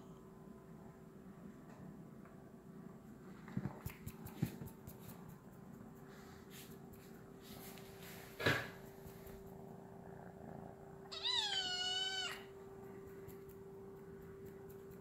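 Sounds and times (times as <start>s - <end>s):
faint steady hum: 0.0s - 15.0s
kitten meowing: 11.1s - 12.5s.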